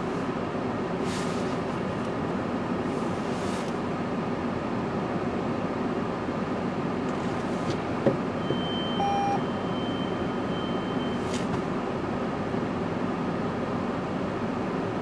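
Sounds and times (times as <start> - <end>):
short electronic beep: 8.4 - 11.3.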